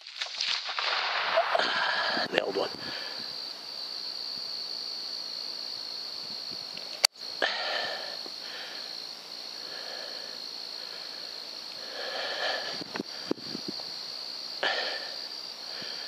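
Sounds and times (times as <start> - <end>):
sharp crack: 0.0 - 2.7
high-pitched hiss: 0.0 - 16.0.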